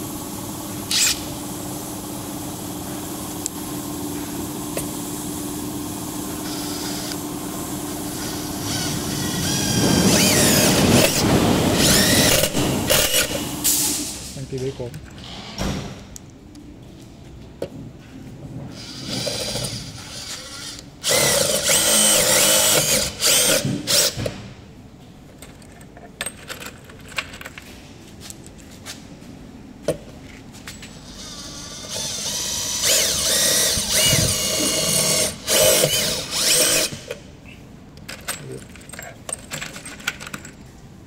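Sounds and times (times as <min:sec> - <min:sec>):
impact driver driving screws: 0:31.9 - 0:37.2.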